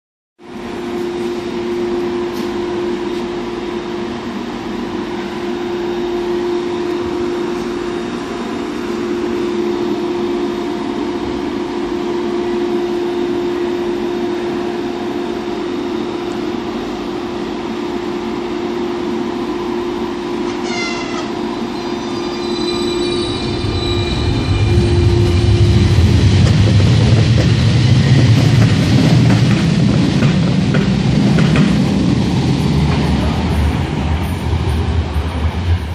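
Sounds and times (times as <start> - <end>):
train electrical hum: 0.4 - 35.9
high squealing tones: 20.6 - 27.1
low rumble: 22.8 - 35.9.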